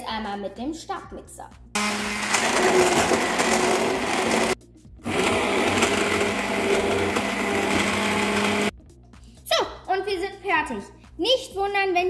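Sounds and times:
immersion blender running: 1.8s - 8.7s.

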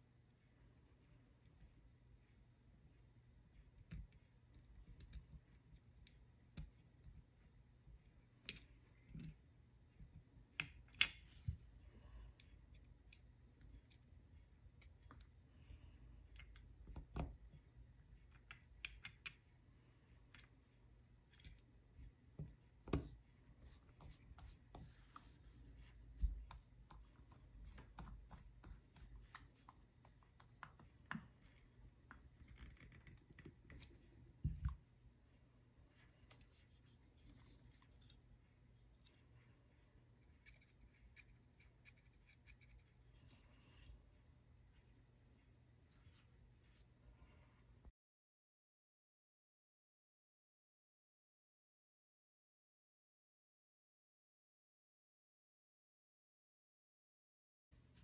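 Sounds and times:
small parts clicking and tapping: 40.4s - 43.0s.

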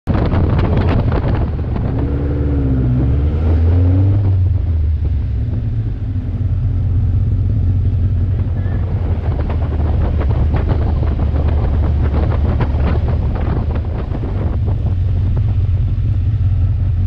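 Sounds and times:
car engine running at low revs: 0.1s - 17.0s
wind noise on microphone: 0.1s - 17.0s.

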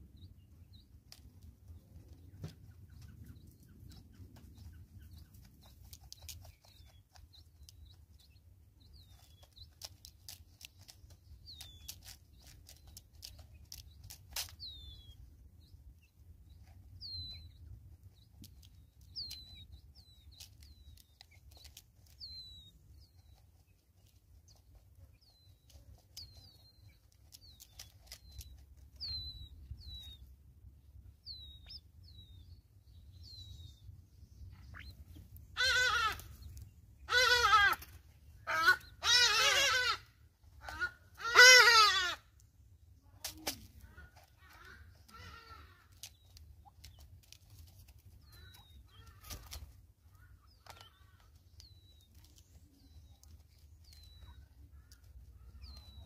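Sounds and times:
beaks pecking on plastic feeder: 0.7s - 30.2s, 43.2s - 56.0s
high falling bird peeps: 16.0s - 30.3s, 31.1s - 37.9s.

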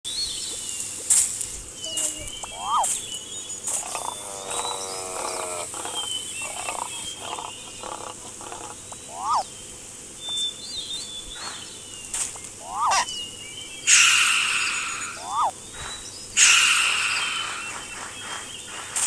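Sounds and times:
birds chirping and whistling: 0.1s - 19.0s
falling pitched animal call: 3.8s - 9.4s, 12.6s - 13.1s, 13.9s - 15.6s.

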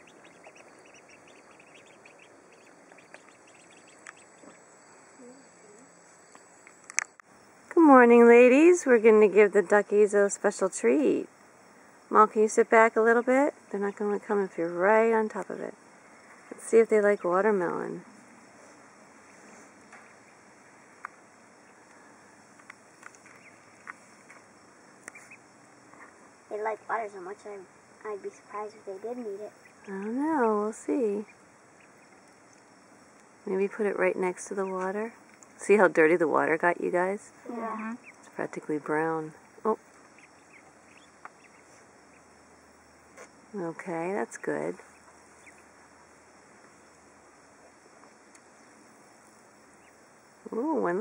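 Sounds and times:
ducklings peeping: 0.0s - 4.6s, 16.4s - 17.6s, 23.0s - 24.0s, 25.0s - 26.2s, 28.3s - 32.7s, 33.5s - 35.9s, 37.8s - 43.3s, 44.2s - 46.1s, 49.6s - 50.0s
faint outdoor background: 0.0s - 51.0s
faint sharp click: 6.3s - 7.3s, 48.3s - 48.5s.

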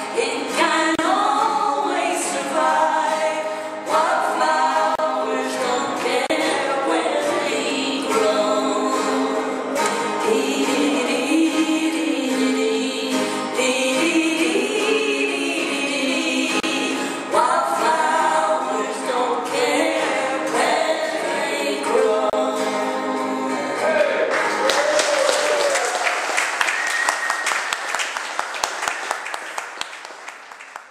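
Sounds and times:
women singing folk song: 0.0s - 24.0s
acoustic guitars: 0.0s - 30.4s
audience applause: 24.0s - 30.9s.

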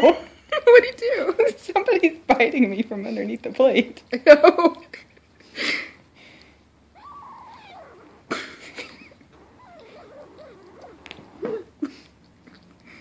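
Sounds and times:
kitten crying: 7.0s - 11.7s
sharp clicks: 9.4s - 11.6s.

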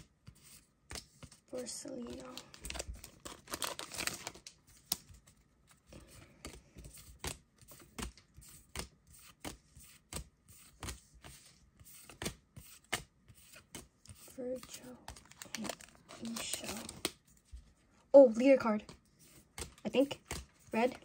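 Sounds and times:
faint rustling of cards: 0.0s - 21.0s.

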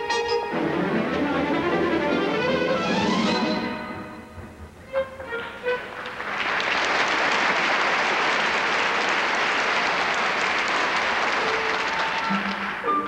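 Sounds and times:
short orchestral notes: 0.0s - 6.3s
audience applauding: 5.6s - 13.0s.

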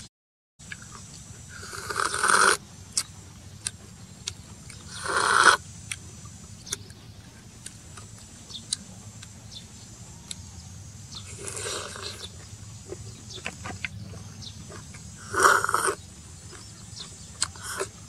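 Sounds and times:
wet chewing clicks: 0.6s - 10.5s, 11.1s - 18.0s
loud slurps: 1.5s - 2.6s, 4.8s - 5.6s, 11.2s - 18.0s.

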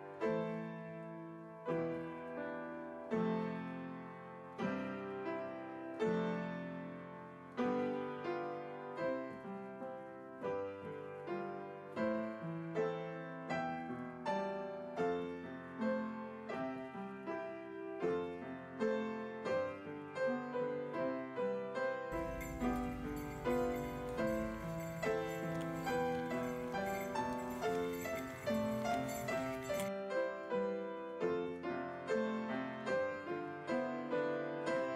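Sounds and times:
piano music: 22.1s - 31.6s.

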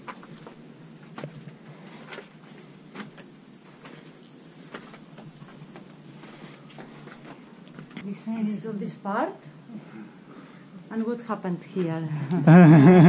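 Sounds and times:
footsteps on dirt and rock: 0.0s - 8.2s
steady background hiss: 0.0s - 13.0s.

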